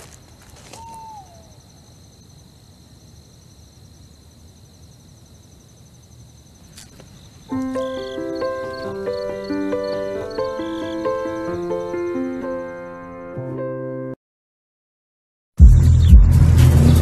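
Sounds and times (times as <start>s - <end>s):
crickets trilling: 0.0s - 12.8s
short falling whistle: 0.8s - 1.6s.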